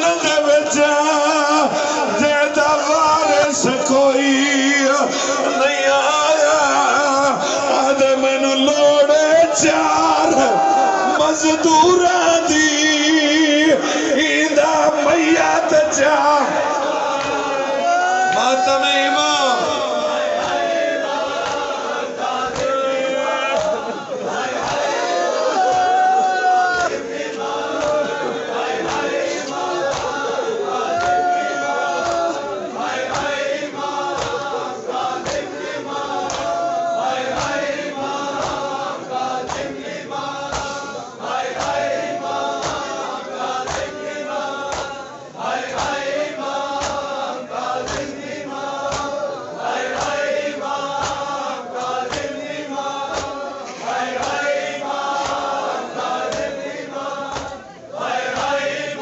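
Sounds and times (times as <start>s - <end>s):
crowd of men chanting: 0.0s - 59.0s
steady beat of strikes: 40.4s - 41.0s.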